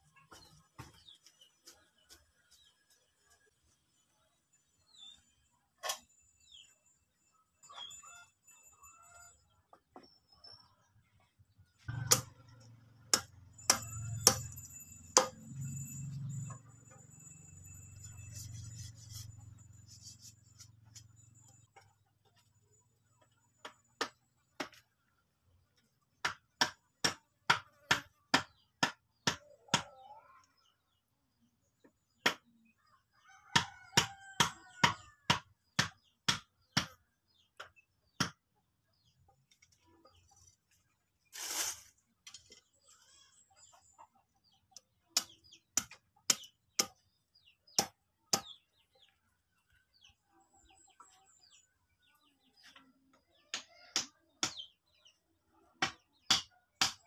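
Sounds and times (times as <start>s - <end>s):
machete chopping wood: 11.9s - 12.3s, 15.2s - 15.4s, 55.8s - 57.0s.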